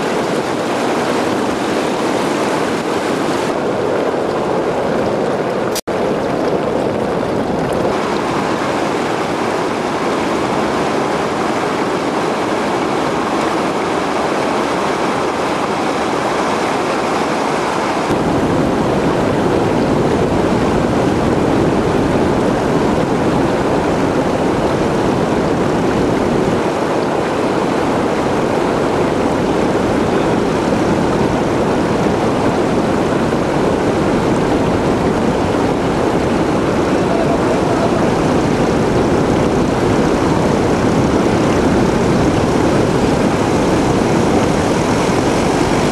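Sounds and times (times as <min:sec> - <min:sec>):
floodwater rushing: 0:00.0 - 0:45.9
tractor driving through water: 0:00.0 - 0:45.9
wind: 0:00.0 - 0:45.9.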